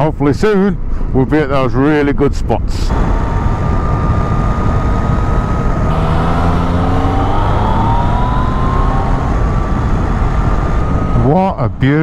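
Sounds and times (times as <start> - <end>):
motorcycle engine: 2.9 - 12.0
wind noise: 2.9 - 12.0.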